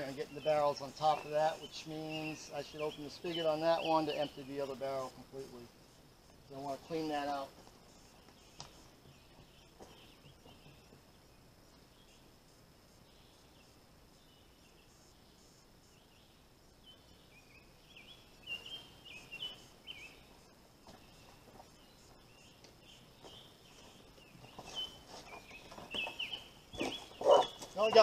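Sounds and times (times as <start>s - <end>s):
high insect drone: 0.0s - 28.0s.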